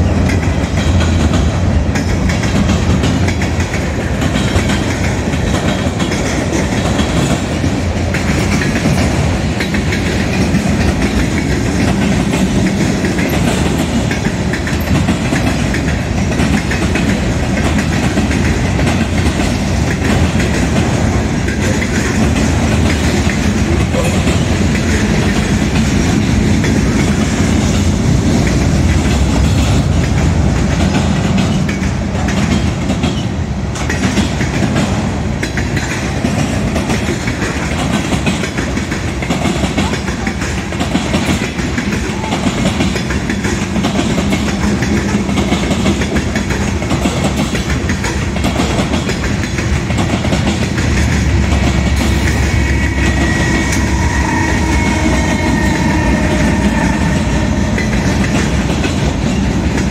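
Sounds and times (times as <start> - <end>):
freight train rumbling past: 0.0 - 59.9
steel wheels clattering on rails: 0.0 - 59.9.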